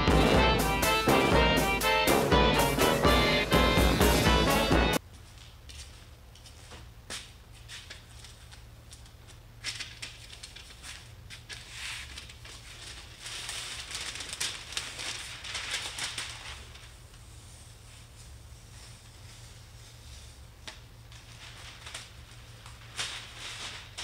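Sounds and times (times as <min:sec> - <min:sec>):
paper crackling and crinkling: 0:07.8 - 0:17.8, 0:18.8 - 0:24.0.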